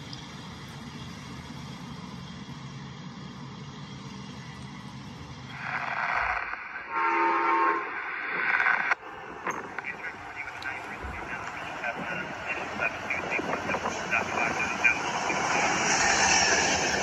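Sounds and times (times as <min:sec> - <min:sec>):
loud rush of noise: 0:05.5 - 0:17.0
multi-tone train horn: 0:06.8 - 0:08.0.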